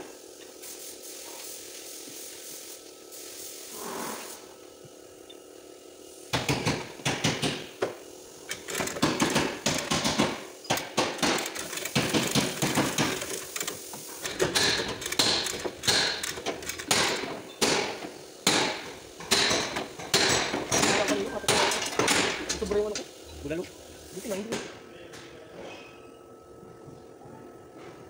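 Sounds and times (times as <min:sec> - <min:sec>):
chain hoist ratcheting clicks: 0:08.5 - 0:09.9, 0:11.4 - 0:16.9.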